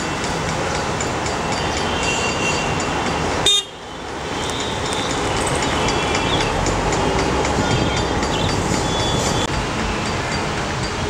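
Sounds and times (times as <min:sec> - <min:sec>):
city traffic noise: 0:00.0 - 0:11.0
vehicle horns tooting: 0:01.6 - 0:02.8, 0:03.4 - 0:06.4.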